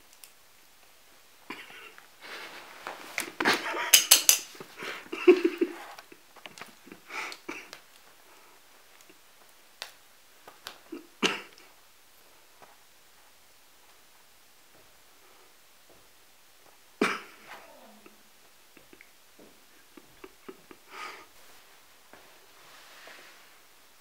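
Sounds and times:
nylon fabric rustling: 2.0 - 18.5, 21.4 - 24.0.

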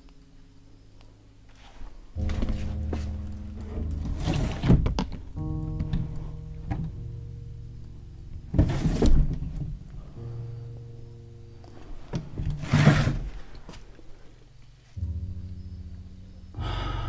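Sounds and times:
low steady hum: 0.0 - 17.0
cabinet doors rustling and scraping: 3.7 - 5.2, 8.5 - 9.8, 12.1 - 13.8.

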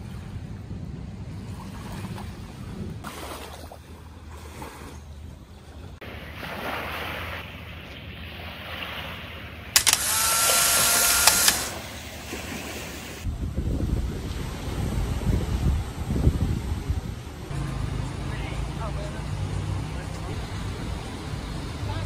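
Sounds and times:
water at the shore: 0.0 - 9.8, 10.8 - 22.0.

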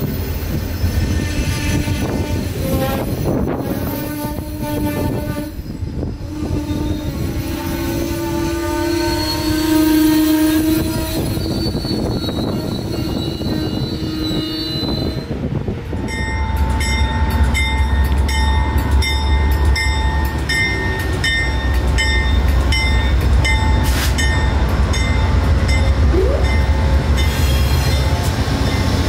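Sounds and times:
diesel locomotive engine rumble: 0.0 - 29.0
locomotive bell ringing: 16.0 - 29.0.

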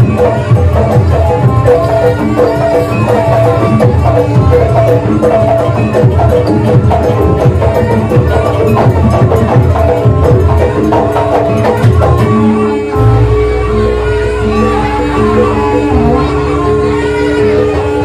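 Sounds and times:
percussion music with drums: 0.0 - 18.0.

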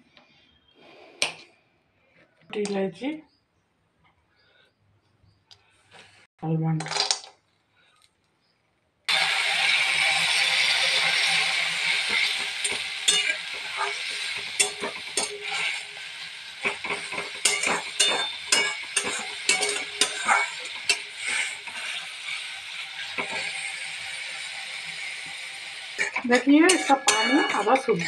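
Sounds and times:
metal spatula scraping a pan: 9.1 - 28.0
noodles sizzling in oil: 9.1 - 28.0.

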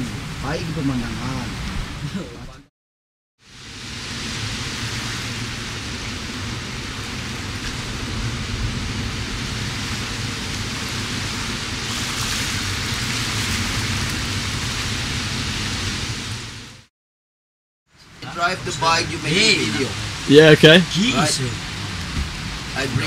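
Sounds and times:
ocean surf breaking: 18.2 - 23.0.

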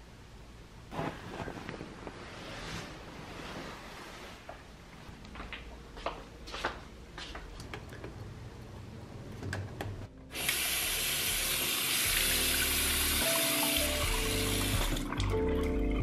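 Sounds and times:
faucet water running into sink: 10.3 - 16.0.

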